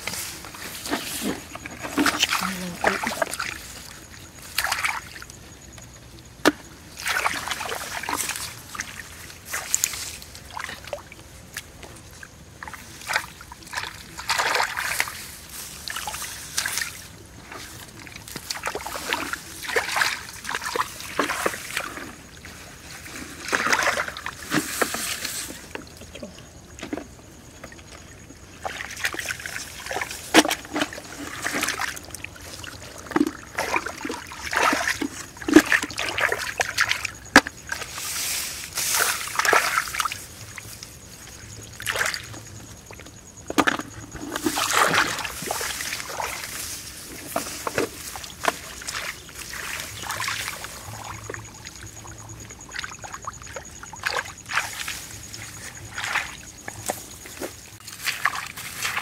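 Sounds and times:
shallow water splashing: 27.6s - 59.0s.

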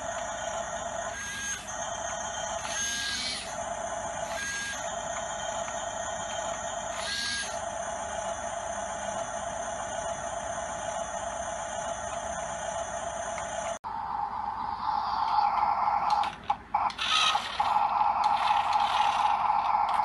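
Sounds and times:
toy motor and gearbox whirring: 0.0s - 7.6s, 15.1s - 20.0s.

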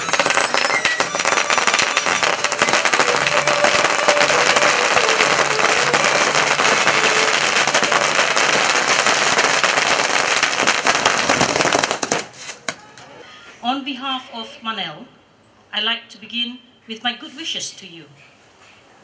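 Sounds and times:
firecrackers banging: 0.0s - 13.0s.

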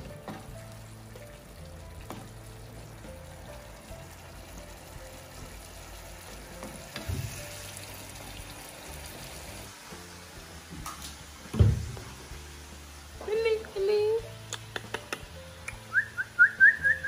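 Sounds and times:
shrimp sizzling in a frying pan: 0.0s - 16.0s
knock: 11.5s - 12.1s
loud low thump: 11.5s - 12.1s.

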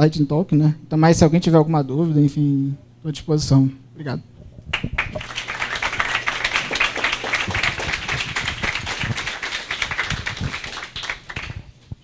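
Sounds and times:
audience applauding: 4.7s - 11.8s.

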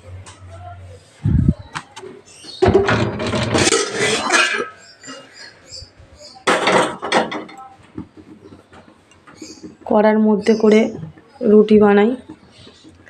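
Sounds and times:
metal pots clattering and scraping: 2.5s - 5.6s, 6.4s - 7.6s.

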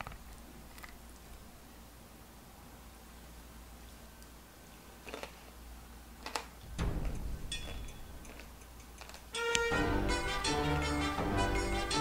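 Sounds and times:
low hum: 6.6s - 12.0s.

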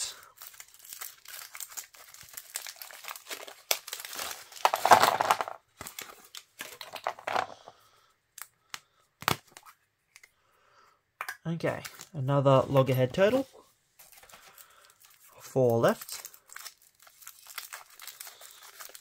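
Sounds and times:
foil wrapper crinkling and tearing: 0.0s - 7.1s, 14.0s - 19.0s.

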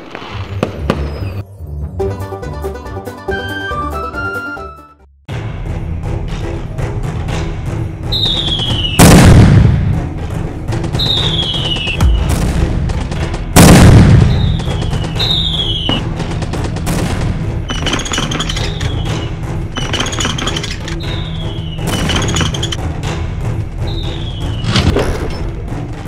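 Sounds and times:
background music: 0.0s - 26.0s
falling shell whistles: 8.1s - 9.1s, 11.0s - 12.0s, 14.2s - 16.0s, 17.7s - 22.8s, 23.9s - 25.0s
loud explosions: 8.2s - 10.2s, 11.0s - 18.8s
gunfire cracks: 9.0s - 10.0s, 12.0s - 16.0s.

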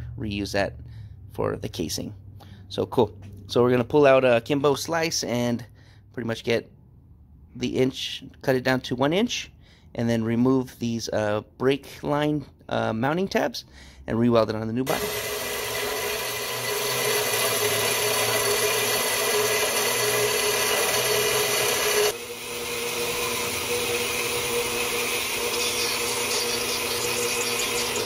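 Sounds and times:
band saw cutting metal: 14.9s - 28.0s.

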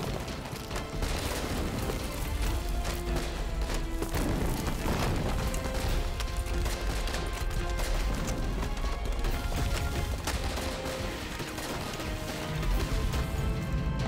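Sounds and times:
gunfire shots: 0.0s - 13.3s
film score music: 0.0s - 14.0s.

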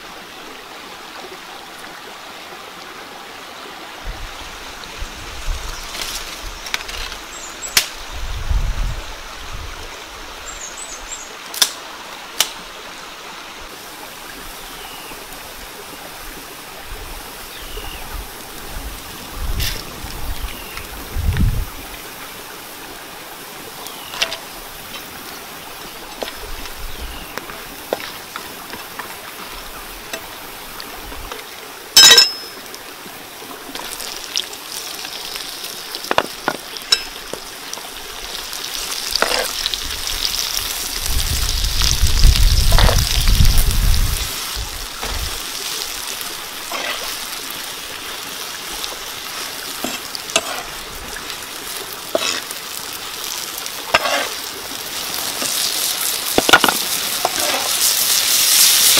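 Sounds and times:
stream flowing: 0.0s - 58.9s.

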